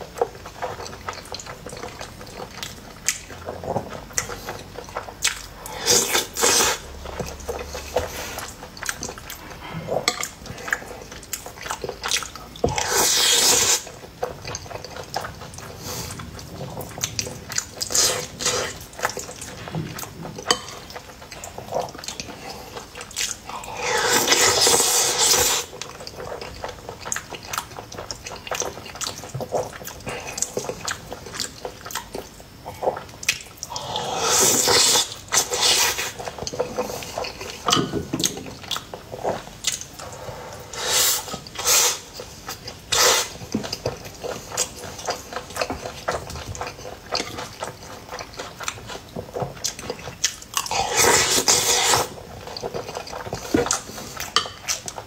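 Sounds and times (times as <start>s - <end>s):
wet chewing and lip-smacking: 0.0s - 55.0s
loud slurps: 5.7s - 6.8s, 12.8s - 13.9s, 23.7s - 25.7s, 33.7s - 36.2s, 40.7s - 42.1s, 42.9s - 43.4s, 50.7s - 52.2s.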